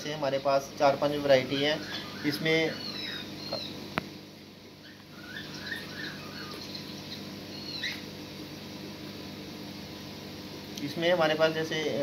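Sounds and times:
steady background hum: 0.0 - 12.0
high-pitched animal chirps: 1.6 - 3.8, 4.8 - 8.1.

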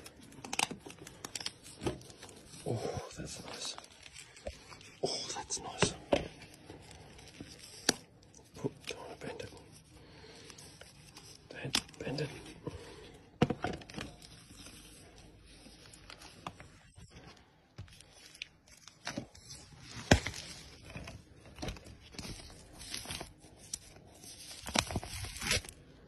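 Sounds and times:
plastic wrapping rustling: 13.7 - 26.0.

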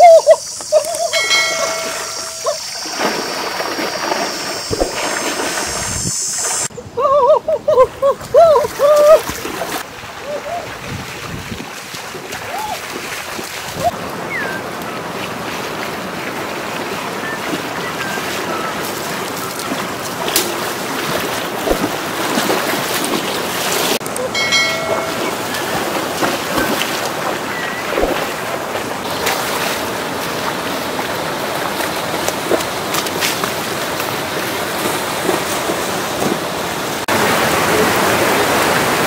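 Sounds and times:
chiming sound effect: 1.1 - 3.0, 24.2 - 25.9
river water rushing: 1.1 - 6.7, 8.6 - 39.0
wind on microphone: 1.2 - 9.4, 10.2 - 12.8.

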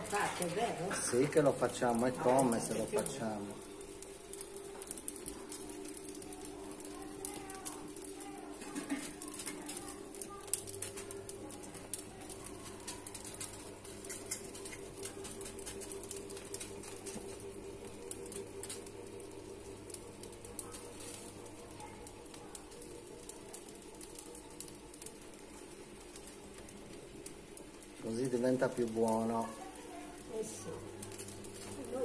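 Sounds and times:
burning fat popping and spitting: 0.0 - 32.0
wood fire crackling: 0.0 - 32.0.

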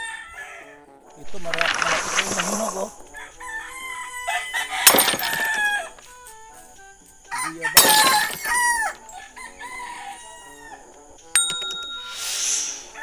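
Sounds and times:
rooster crowing: 0.0 - 0.9, 2.9 - 6.0, 7.3 - 10.9
light background music: 0.0 - 13.0.

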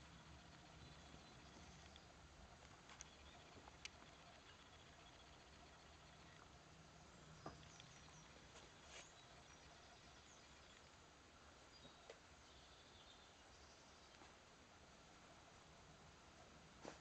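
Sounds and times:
faint clicks: 0.4 - 6.6, 7.4 - 8.7.

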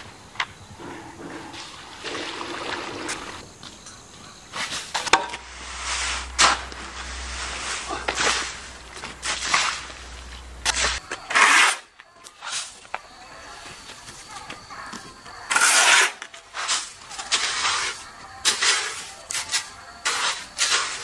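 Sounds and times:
shovel scraping concrete: 4.5 - 13.0, 15.4 - 21.0.

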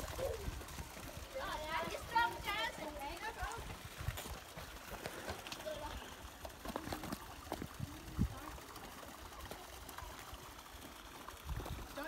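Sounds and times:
water running over rocks: 0.0 - 12.0.

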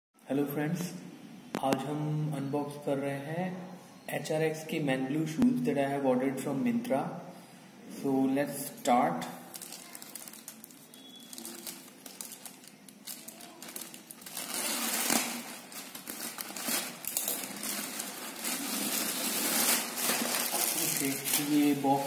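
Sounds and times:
plastic mailer bag crinkling: 9.5 - 22.0.

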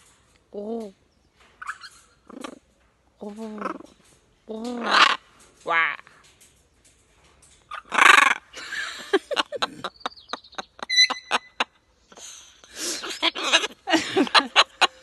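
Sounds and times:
woman laughing: 8.6 - 11.7, 12.8 - 15.0
parrot mimicking laughter: 10.7 - 11.7, 13.0 - 13.8.

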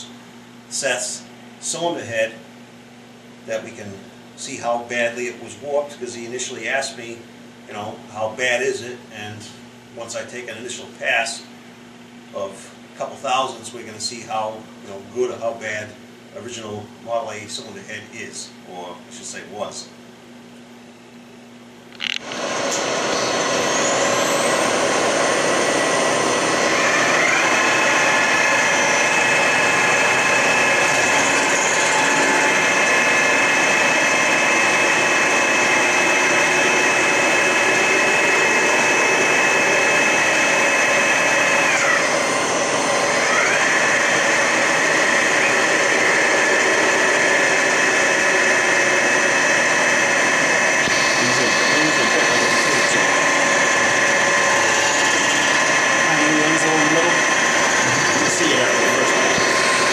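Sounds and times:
milling machine spindle whine: 22.0 - 59.9.

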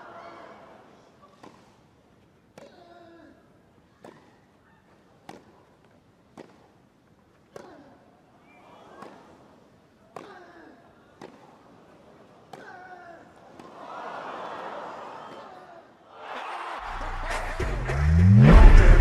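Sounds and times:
rackets striking tennis ball: 1.3 - 1.8, 2.5 - 2.9, 4.0 - 7.8, 11.2 - 11.7.

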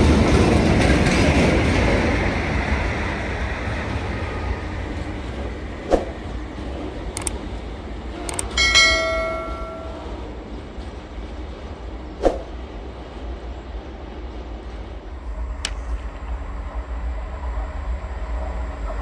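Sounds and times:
freight train rumbling: 0.0 - 19.0
notification bell ding: 8.3 - 10.1.

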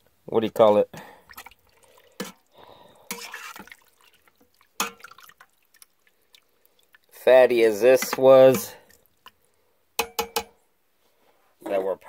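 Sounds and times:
metal spoon stirring in water: 1.3 - 9.4.

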